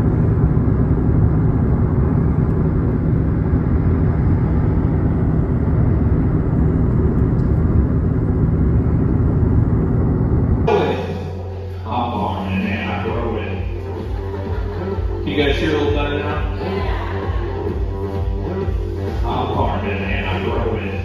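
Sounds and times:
car road and wind noise: 0.0s - 10.7s.

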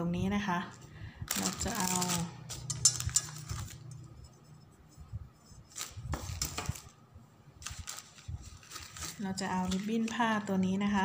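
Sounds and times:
hands rustling craft pieces: 1.2s - 4.1s, 7.6s - 10.4s.

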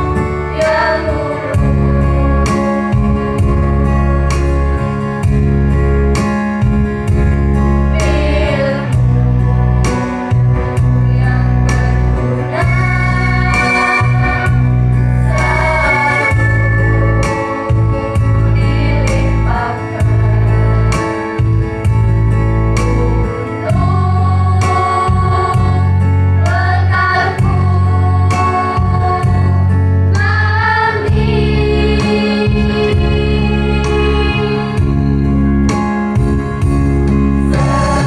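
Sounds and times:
girls singing into microphones: 0.0s - 4.1s, 7.9s - 9.8s, 11.0s - 21.1s, 22.8s - 34.9s, 37.4s - 38.0s
amplified backing music: 0.0s - 38.0s.

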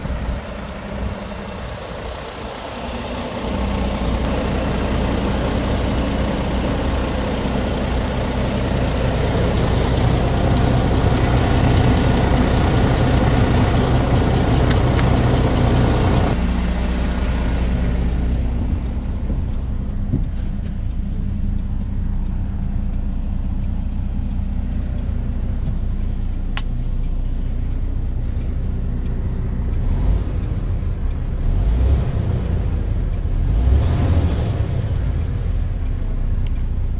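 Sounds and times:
diesel truck engine idling: 0.0s - 36.9s
low thumps: 18.3s - 22.0s.

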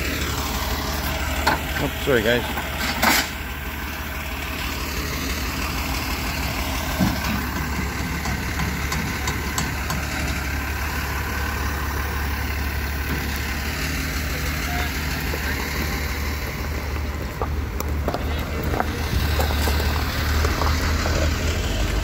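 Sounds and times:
truck engine running: 0.0s - 22.0s.

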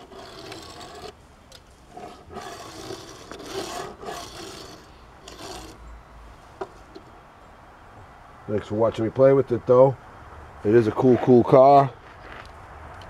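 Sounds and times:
toy car wheels rolling on wood: 0.0s - 5.8s.

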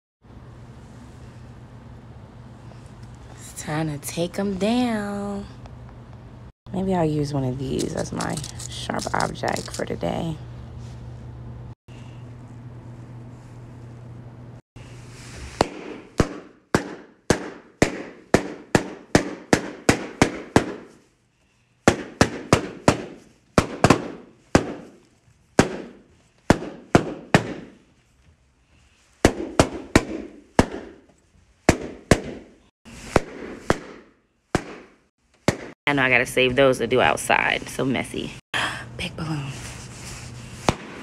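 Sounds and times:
balloons popping: 15.6s - 21.1s, 21.8s - 27.9s, 29.2s - 35.8s, 40.6s - 41.0s.

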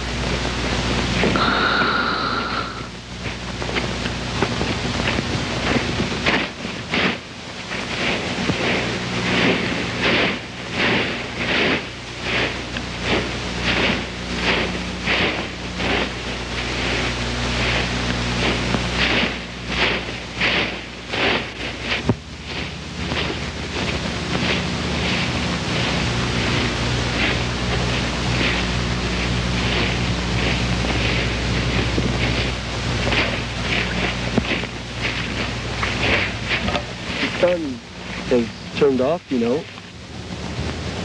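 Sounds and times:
footsteps crunching through snow: 0.0s - 39.9s
low hum: 0.0s - 41.0s.

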